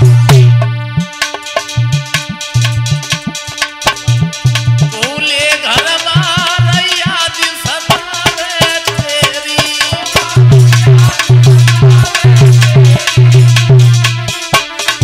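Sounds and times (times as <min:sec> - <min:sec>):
wavering melodic lead: 0:00.0 - 0:07.4, 0:09.6 - 0:15.0
hand drum rhythm: 0:00.0 - 0:15.0
heavy deep drum strokes: 0:10.0 - 0:14.4.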